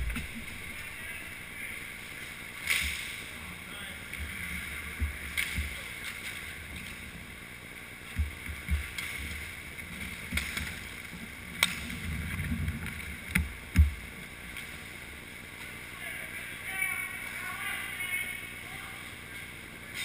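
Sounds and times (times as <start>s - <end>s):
low thumps: 0.0s - 1.3s.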